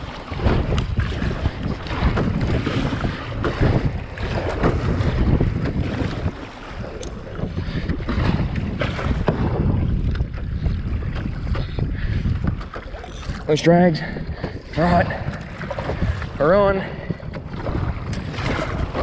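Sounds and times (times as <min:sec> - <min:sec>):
water splashing from paddling: 0:00.0 - 0:19.0
wind buffeting microphone: 0:00.0 - 0:19.0.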